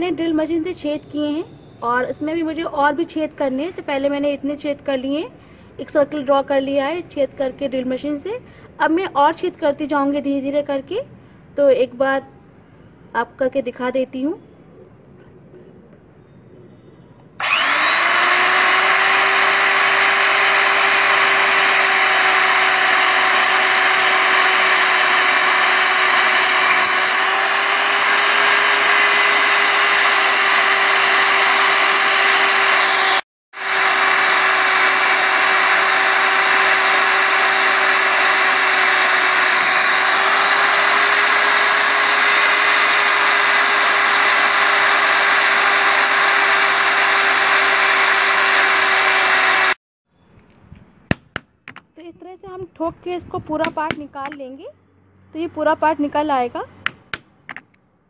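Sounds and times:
electric drill boring through wood: 0:17.4 - 0:49.8.

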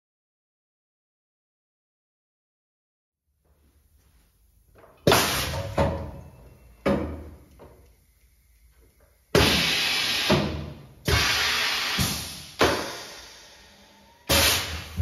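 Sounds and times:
hiss of air: 0:11.1 - 0:15.0.

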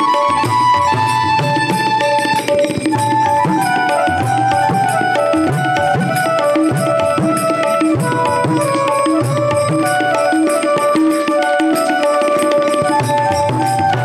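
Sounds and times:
tabla rhythm: 0:00.0 - 0:14.0.

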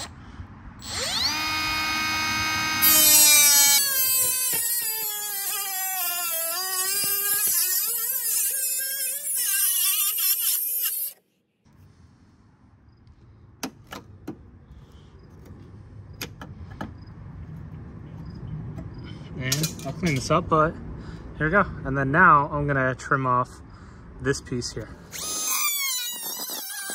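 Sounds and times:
cut-off tool whining through steel: 0:00.8 - 0:11.2, 0:25.1 - 0:26.9.

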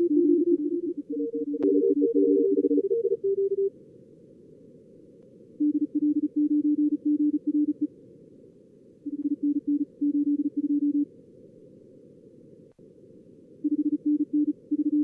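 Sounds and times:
morse code beeps: 0:00.0 - 0:03.7
receiver noise hiss: 0:00.0 - 0:15.0.

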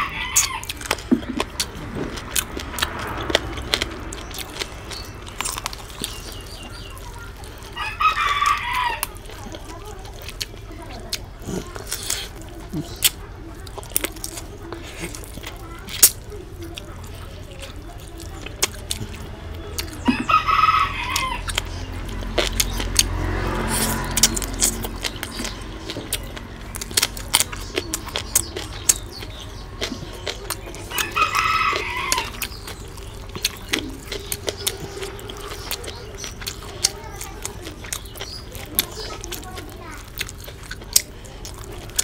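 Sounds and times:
rooster crowing: 0:00.0 - 0:00.7, 0:07.8 - 0:09.2, 0:20.1 - 0:21.5, 0:30.9 - 0:32.5
person chewing and lip-smacking: 0:00.0 - 0:20.4, 0:21.1 - 0:42.0.

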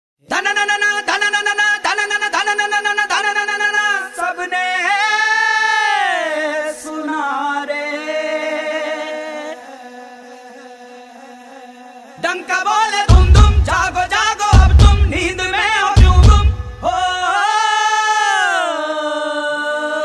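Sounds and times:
man singing sliding notes: 0:00.3 - 0:20.0
steady drone: 0:13.1 - 0:17.2.

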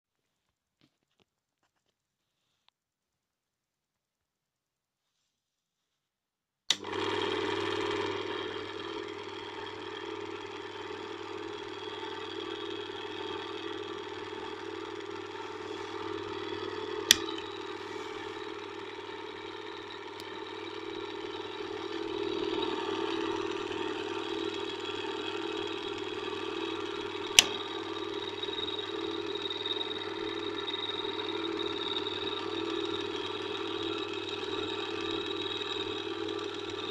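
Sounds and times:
projector switch click: 0:06.7 - 0:07.0, 0:12.1 - 0:29.2
film projector motor humming: 0:06.7 - 0:36.9.

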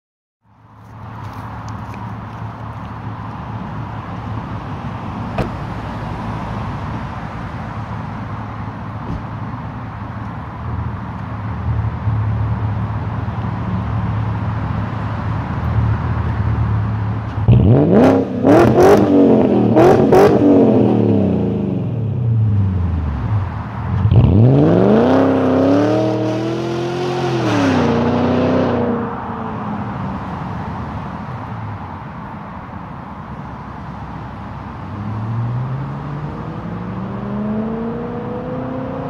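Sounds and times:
car engine revving: 0:17.4 - 0:22.8, 0:24.0 - 0:29.3, 0:35.0 - 0:39.0.

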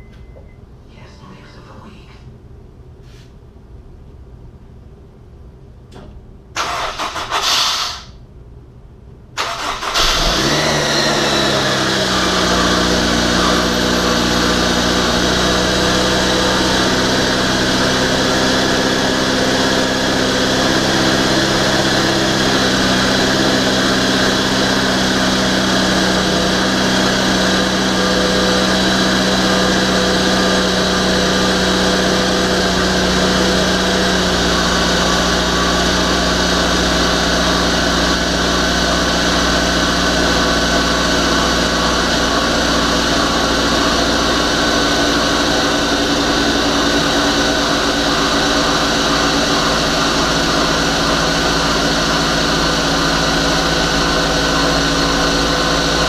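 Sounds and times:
car engine cranking and idling: 0:06.5 - 0:08.0, 0:09.4 - 0:56.0
short burst of noise: 0:06.6 - 0:08.2.

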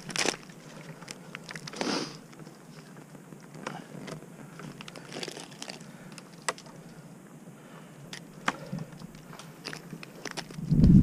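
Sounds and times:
climbing gear rustling: 0:00.0 - 0:07.1.

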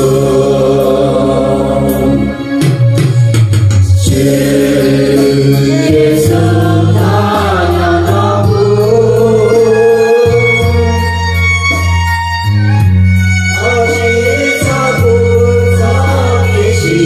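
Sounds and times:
held bass notes: 0:00.0 - 0:17.0
person singing: 0:04.1 - 0:11.4, 0:13.5 - 0:17.0.

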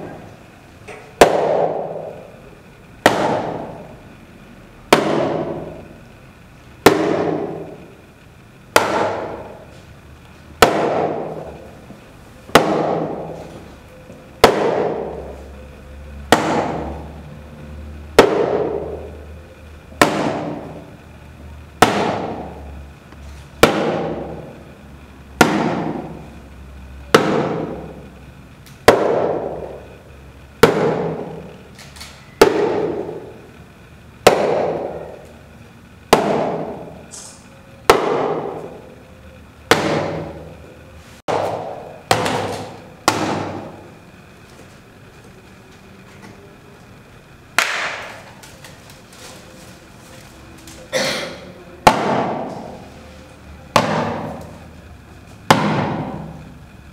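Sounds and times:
stick striking a box: 0:01.2 - 0:02.2, 0:03.0 - 0:03.8, 0:04.9 - 0:05.8, 0:06.8 - 0:07.8, 0:08.7 - 0:09.6, 0:10.6 - 0:11.6, 0:12.5 - 0:13.4, 0:14.4 - 0:15.3, 0:16.3 - 0:17.0, 0:18.2 - 0:19.1, 0:20.0 - 0:20.8, 0:21.8 - 0:22.6, 0:23.6 - 0:24.5, 0:25.4 - 0:26.3, 0:27.1 - 0:28.0, 0:28.8 - 0:29.8, 0:30.6 - 0:31.5, 0:32.4 - 0:33.4, 0:34.2 - 0:35.2, 0:36.1 - 0:37.3, 0:37.9 - 0:38.8, 0:39.7 - 0:40.5, 0:41.3 - 0:43.8, 0:47.6 - 0:48.3, 0:51.8 - 0:52.8, 0:53.7 - 0:54.6, 0:55.5 - 0:56.4.

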